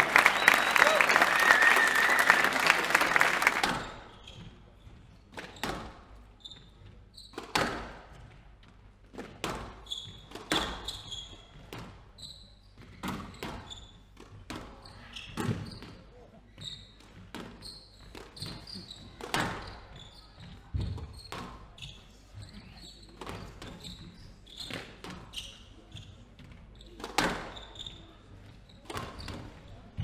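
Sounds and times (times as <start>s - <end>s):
applause: 0.0s - 4.1s
squash ball hitting rackets and walls: 5.3s - 6.1s, 6.8s - 8.4s, 9.1s - 12.0s, 12.8s - 15.9s, 17.0s - 20.0s, 23.2s - 25.6s, 26.4s - 28.0s, 28.8s - 29.7s
shoe squeaks on wooden floor: 6.4s - 7.4s, 9.8s - 14.1s, 14.8s - 17.0s, 17.6s - 29.7s.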